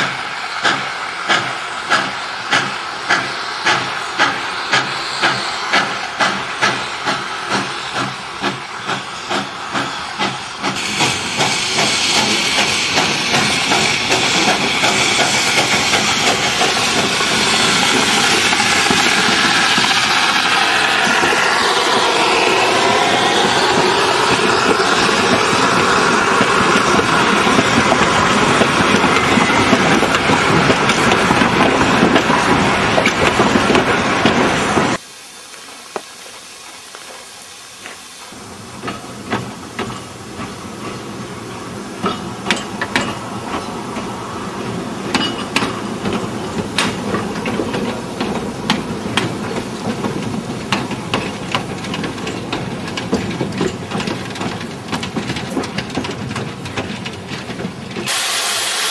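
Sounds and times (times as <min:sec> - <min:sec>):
steam hissing from locomotive: 0:00.0 - 0:58.9
train coaches rumbling on rails: 0:00.0 - 0:58.9
sharp clicks and knocks: 0:45.1 - 0:58.1.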